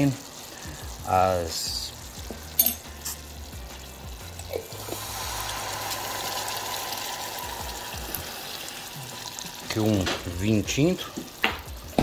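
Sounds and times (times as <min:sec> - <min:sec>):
sharp clink: 0:02.6 - 0:03.2
wine pouring into hot saucepan: 0:03.3 - 0:12.0.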